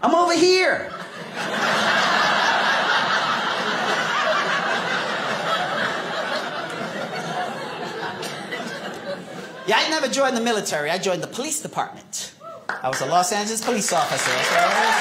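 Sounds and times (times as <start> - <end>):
audience laughing: 0.8 - 10.1.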